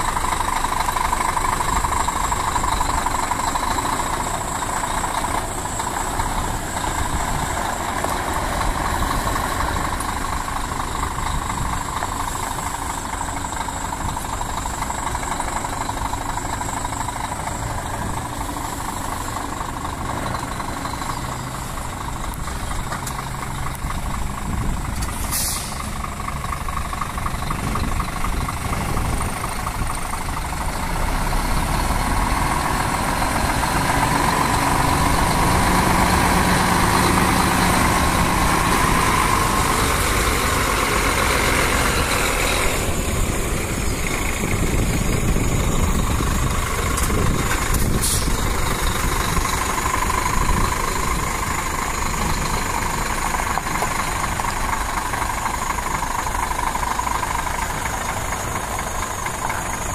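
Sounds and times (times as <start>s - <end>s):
truck diesel engine at low revs: 0.0s - 59.9s
short high air hiss: 25.1s - 25.9s, 48.0s - 48.4s.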